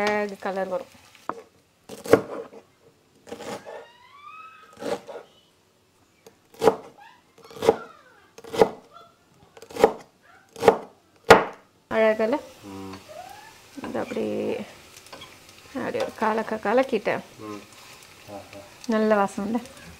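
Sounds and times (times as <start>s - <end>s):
knife chopping on wooden board: 1.9s - 2.6s, 3.2s - 3.8s, 4.8s - 5.2s, 6.5s - 6.9s, 7.5s - 7.8s, 8.4s - 8.8s, 9.6s - 11.6s.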